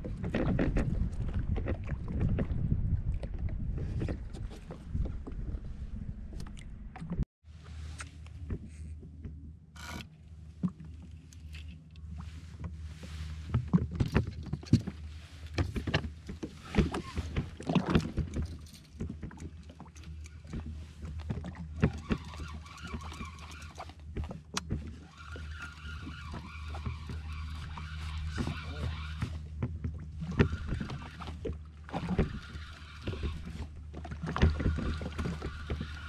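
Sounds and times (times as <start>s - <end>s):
fishing gear knocks and clicks: 13.5s - 24.9s
fishing reel whirring: 21.8s - 23.9s, 25.0s - 29.4s, 30.3s - 36.0s.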